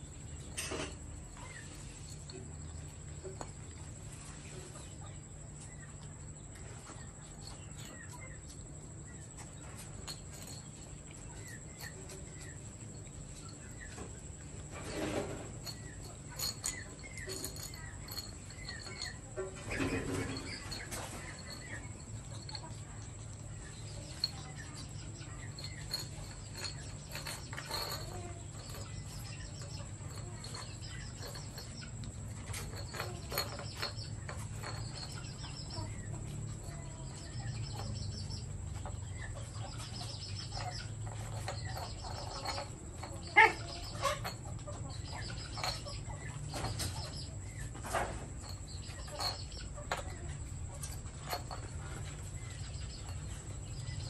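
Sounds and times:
puppies squeaking and yipping: 15.0 - 54.0.

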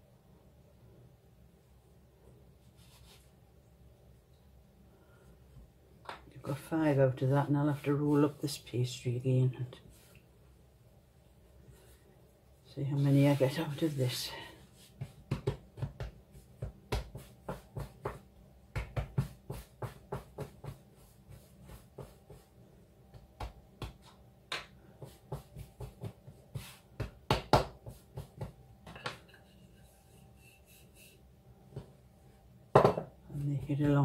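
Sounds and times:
dough pressed with soft thumps: 11.6 - 34.0
rolling pin on dough: 13.0 - 32.0.

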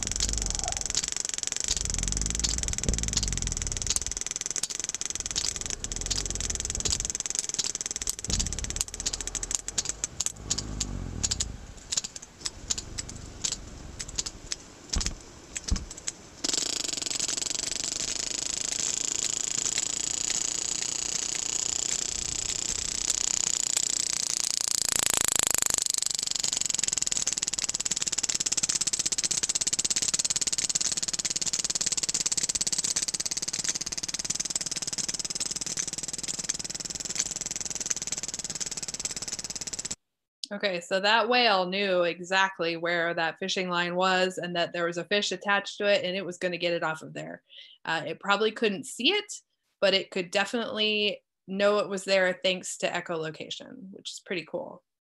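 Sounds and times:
low underwater rumble: 0.0 - 1.0, 1.7 - 4.2, 5.4 - 7.2, 8.1 - 15.9
steady hiss with high whine: 0.0 - 25.5
whale echolocation clicks: 0.0 - 40.0.

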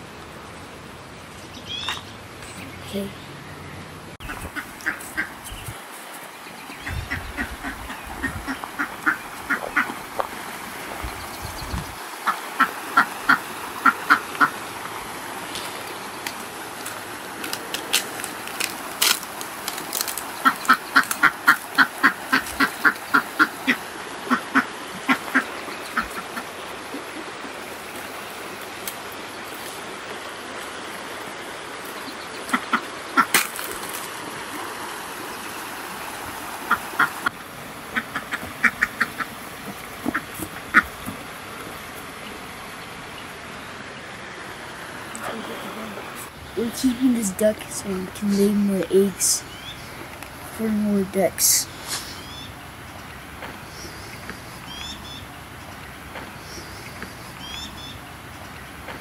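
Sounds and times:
creek rushing: 0.0 - 59.0
duck quacking: 4.2 - 5.3.

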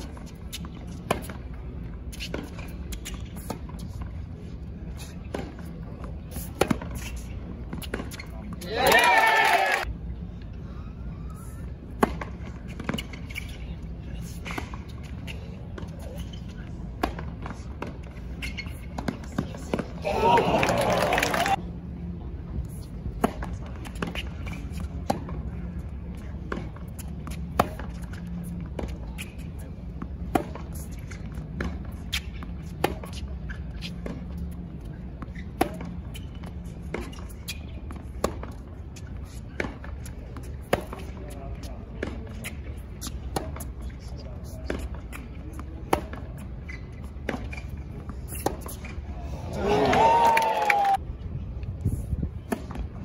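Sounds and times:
tennis ball hits and bounces: 5.2 - 9.7, 11.9 - 13.6, 26.5 - 29.4, 30.0 - 43.7, 44.6 - 49.0.

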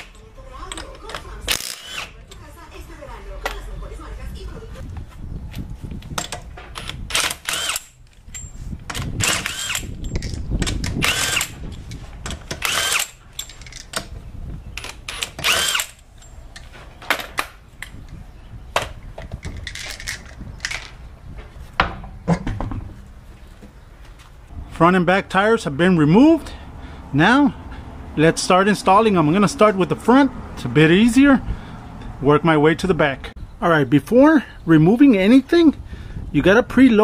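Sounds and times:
impact wrench whining: 0.7 - 2.3, 6.3 - 11.7, 12.3 - 14.1, 14.8 - 16.3.

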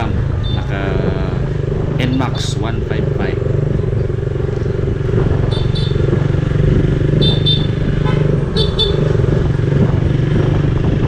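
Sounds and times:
motorcycle engine running: 0.0 - 11.0.

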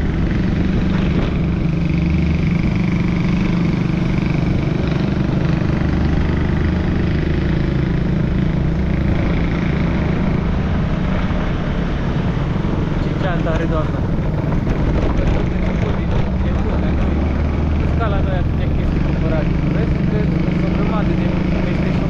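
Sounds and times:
road and wind noise: 0.0 - 22.0
scooter engine running: 0.0 - 22.0.

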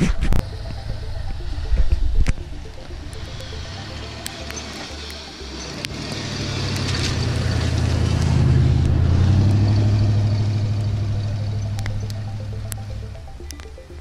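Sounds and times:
pickup truck engine driving by: 2.4 - 13.2.

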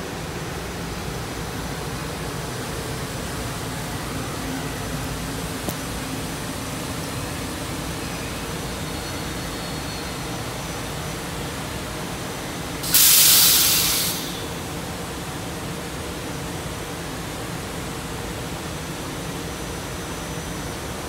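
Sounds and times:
steady low background noise: 0.0 - 12.9
compressed air hissing from train: 0.0 - 15.3.

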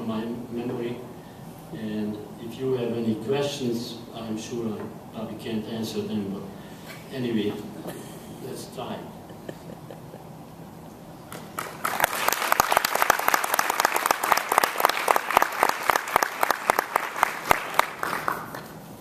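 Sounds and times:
audience applauding: 11.3 - 18.8.

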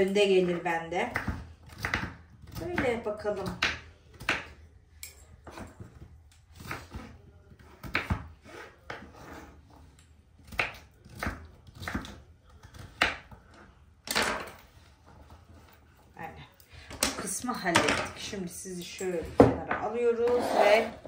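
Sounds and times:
knife chopping on wooden board: 1.1 - 4.6, 7.8 - 8.3, 10.4 - 13.4.

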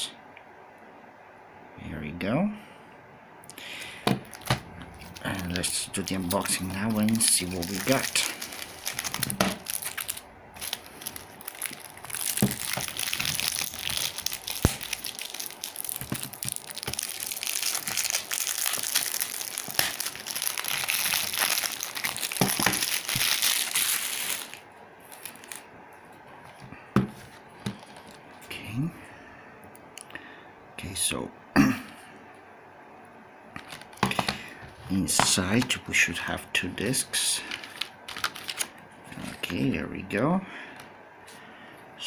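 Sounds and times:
plastic shrink wrap crinkling: 4.1 - 25.7, 26.4 - 28.5, 33.6 - 35.8, 37.4 - 39.7.

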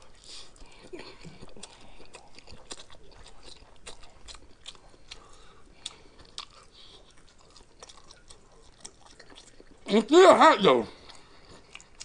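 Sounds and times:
chewing and slurping noodles: 0.0 - 9.9, 10.9 - 12.0.

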